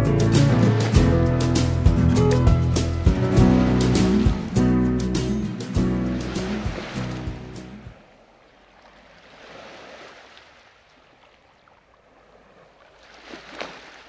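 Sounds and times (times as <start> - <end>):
music: 0.0 - 7.9
sea water waves: 0.0 - 14.0.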